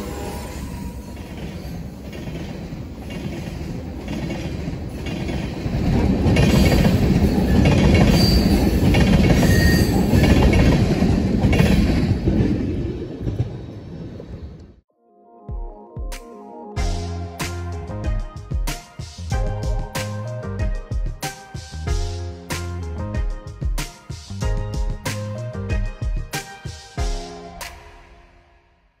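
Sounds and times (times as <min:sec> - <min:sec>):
freight train rumbling: 0:00.0 - 0:14.8
wheels clacking over rail joints: 0:01.2 - 0:14.3
high wheel squeals: 0:07.1 - 0:10.6.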